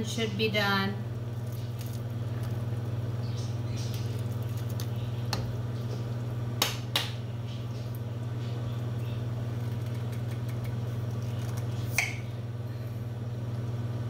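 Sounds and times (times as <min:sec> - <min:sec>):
steady low motor hum: 0:00.0 - 0:14.0.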